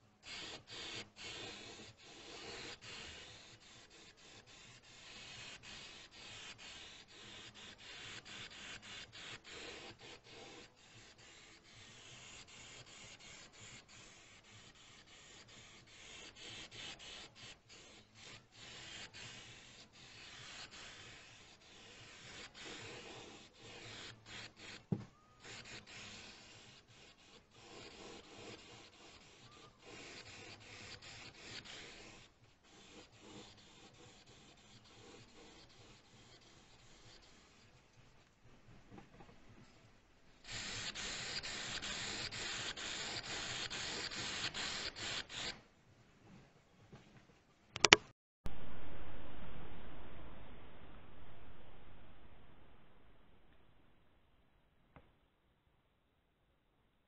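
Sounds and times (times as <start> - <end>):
spray paint can hissing: 0.2 - 24.8, 25.4 - 37.6, 40.4 - 45.6
sharp click: 47.8 - 48.1.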